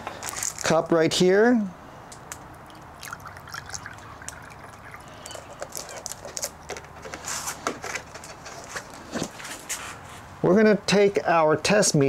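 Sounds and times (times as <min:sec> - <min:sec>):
water pouring into a cup: 0:02.6 - 0:06.3.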